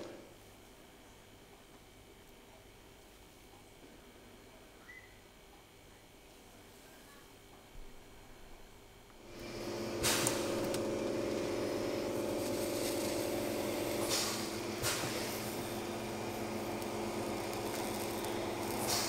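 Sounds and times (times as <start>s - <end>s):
gas torch burning with hissing rush: 0.0s - 0.3s, 9.2s - 19.0s.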